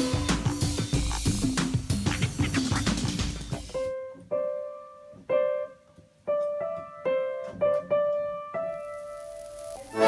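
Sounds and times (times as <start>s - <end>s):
piano notes: 3.5s - 10.0s.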